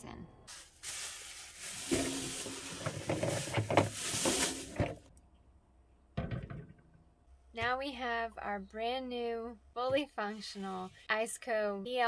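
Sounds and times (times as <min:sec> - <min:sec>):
plastic bags crinkling: 0:00.5 - 0:05.1
items knocking into refrigerator: 0:01.8 - 0:05.1, 0:06.2 - 0:06.8.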